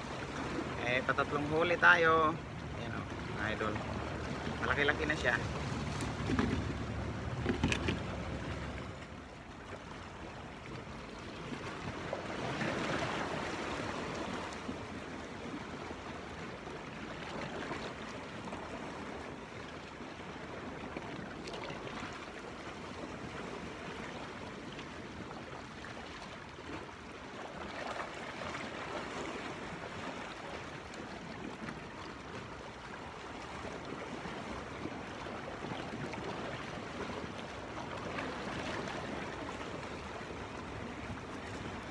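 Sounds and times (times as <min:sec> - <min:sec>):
waves washing against rocks: 0:00.0 - 0:08.9.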